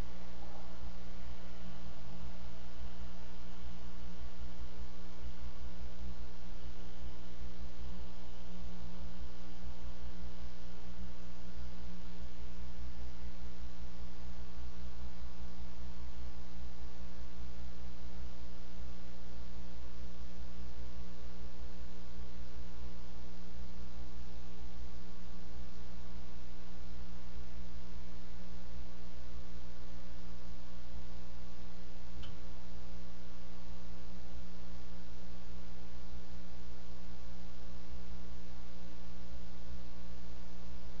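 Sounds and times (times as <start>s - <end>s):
electrical mains hum: 0.0s - 41.0s
faint click: 32.2s - 32.4s.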